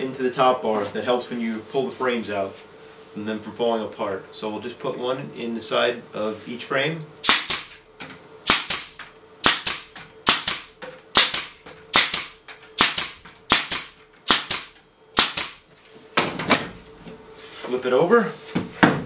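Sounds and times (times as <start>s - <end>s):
pneumatic stapler snapping: 7.2s - 15.6s.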